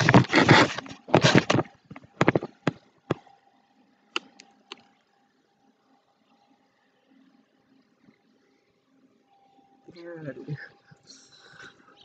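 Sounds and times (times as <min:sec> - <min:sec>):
rubbing against microphone: 0:00.0 - 0:02.7.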